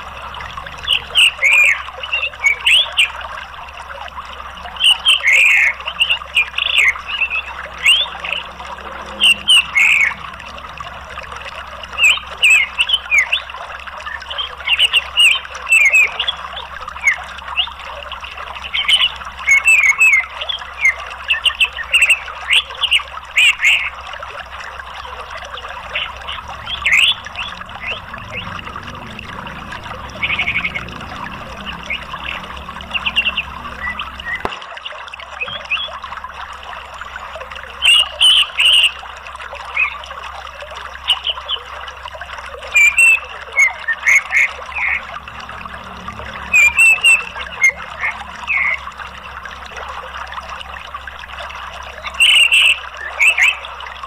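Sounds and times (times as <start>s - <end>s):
running water: 0.0s - 54.0s
thrush chirping: 4.9s - 13.6s.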